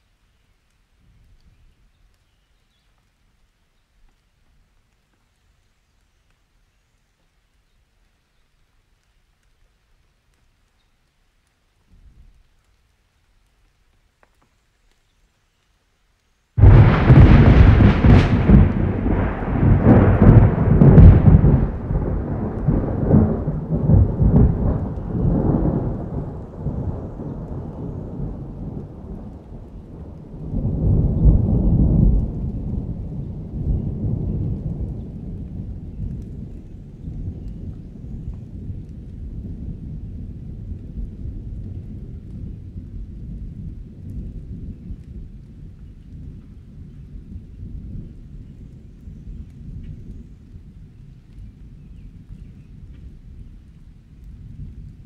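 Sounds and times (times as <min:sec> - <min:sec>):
steady rain: 0:00.0 - 0:55.0
rolling thunder: 0:16.6 - 0:55.0.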